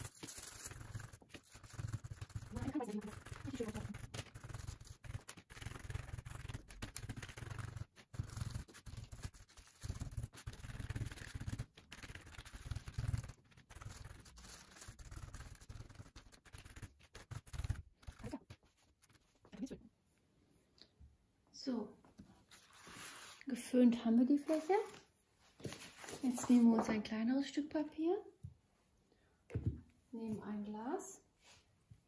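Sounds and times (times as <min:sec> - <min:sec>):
sponge dabbing on foil: 0:00.0 - 0:19.8.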